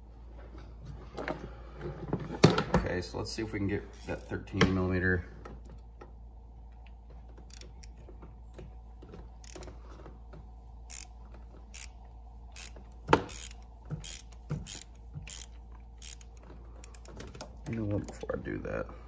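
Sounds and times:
hand ratchet clicking: 0:03.9 - 0:04.3, 0:07.5 - 0:08.0, 0:09.4 - 0:09.7, 0:10.9 - 0:17.8.

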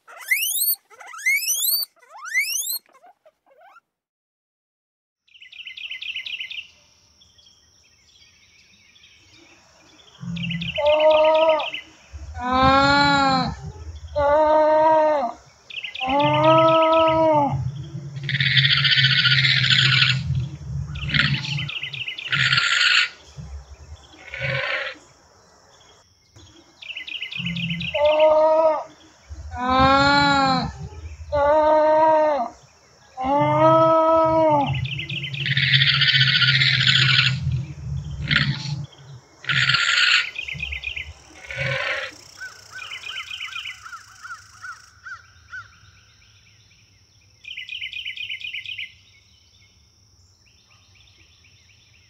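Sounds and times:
shrill alpaca calls: 0:00.0 - 0:03.8, 0:16.0 - 0:20.3, 0:24.2 - 0:25.0, 0:27.4 - 0:32.6, 0:33.2 - 0:37.5, 0:41.4 - 0:42.2
alpaca humming calls: 0:16.0 - 0:20.3, 0:27.4 - 0:32.5, 0:33.2 - 0:40.7.

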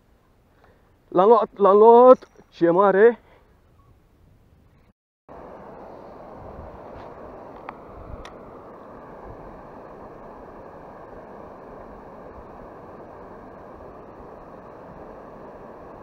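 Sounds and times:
wind: 0:00.0 - 0:16.0
river water rushing: 0:05.3 - 0:16.0.

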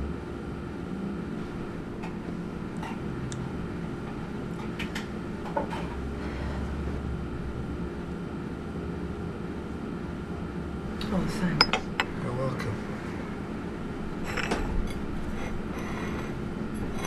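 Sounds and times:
cafe room hum: 0:00.0 - 0:17.0
cups clinking and knocking: 0:11.6 - 0:12.2.

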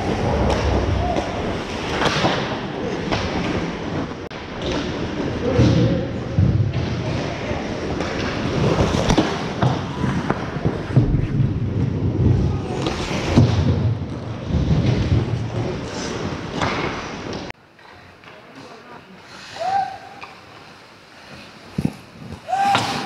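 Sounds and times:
hockey sticks and puck knocking: 0:07.8 - 0:11.1
skate blades scraping ice: 0:20.2 - 0:23.0.

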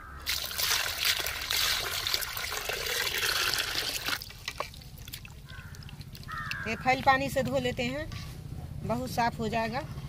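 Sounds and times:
water pouring into metal pan: 0:00.3 - 0:04.7.

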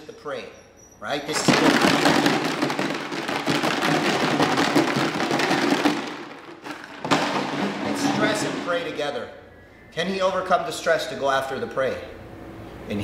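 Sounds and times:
plastic jug rattling: 0:01.3 - 0:09.0.

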